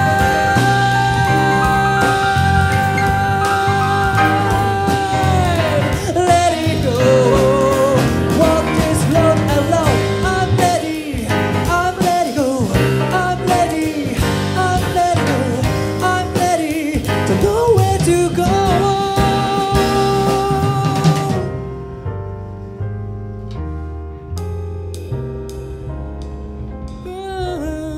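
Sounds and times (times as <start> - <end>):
man singing vocal runs: 0.0 - 21.5
jazz band playing: 0.0 - 27.9.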